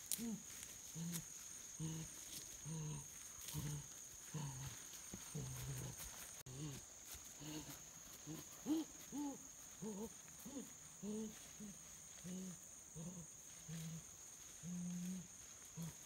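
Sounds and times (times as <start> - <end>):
person making hooting grunts: 7.4 - 13.2.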